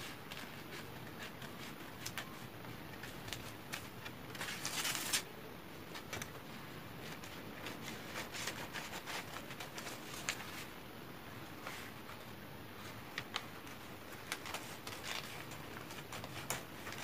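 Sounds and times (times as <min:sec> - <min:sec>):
paper rustling: 0:00.0 - 0:05.3, 0:05.9 - 0:10.8, 0:11.6 - 0:17.0
scissors snipping paper: 0:13.2 - 0:17.0.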